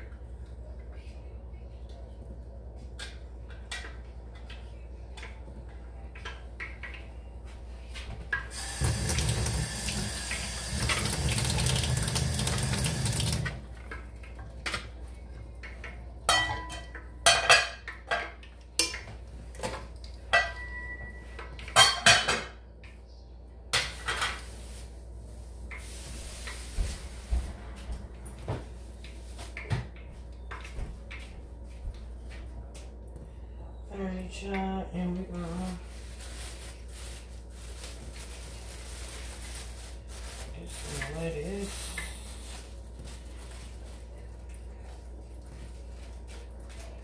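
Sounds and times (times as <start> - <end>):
tap running into a sink: 8.5 - 13.6
dishes and utensils clinking: 15.7 - 22.6.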